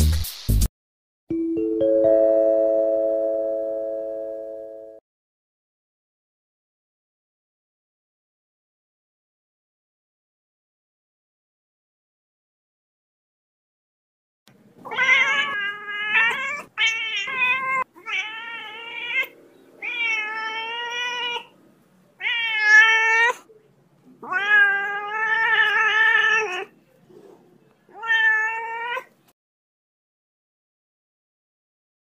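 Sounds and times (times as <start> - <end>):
kitten mewing: 14.8 - 21.5, 22.2 - 23.5, 24.2 - 26.7, 27.9 - 29.1.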